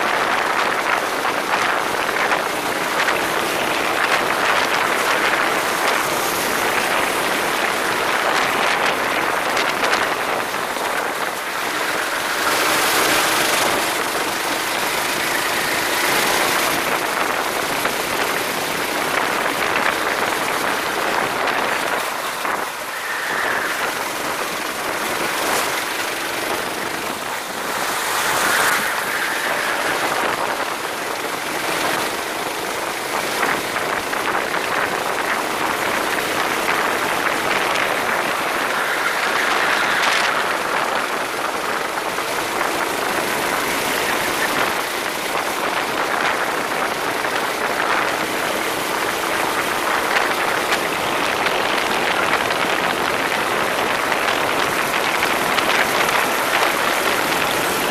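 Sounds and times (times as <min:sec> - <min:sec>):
kart engine running: 0:00.0 - 0:57.9
wind rushing: 0:00.0 - 0:57.9.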